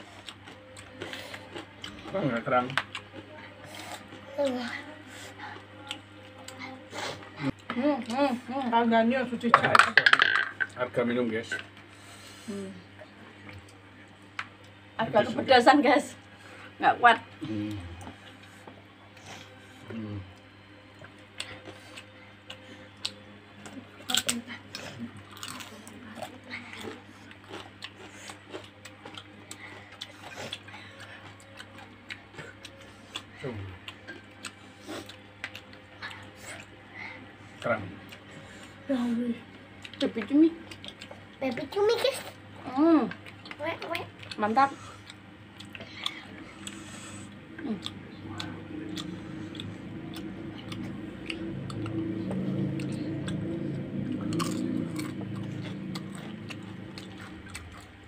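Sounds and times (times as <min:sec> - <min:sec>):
people chewing and eating: 0:00.0 - 0:58.0
steady low hum: 0:00.0 - 0:58.0.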